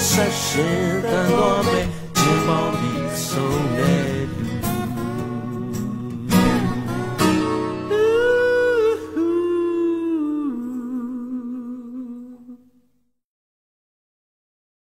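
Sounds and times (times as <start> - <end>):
guitar strum: 0.0 - 9.4
pop song: 0.0 - 12.2
person singing long notes: 0.0 - 12.8.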